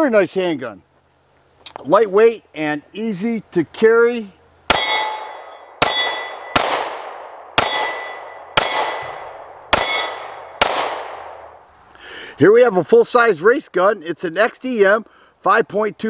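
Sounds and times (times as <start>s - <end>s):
steel target ringing: 4.7s - 6.8s, 7.6s - 11.3s
pistol shots: 4.7s - 11.5s.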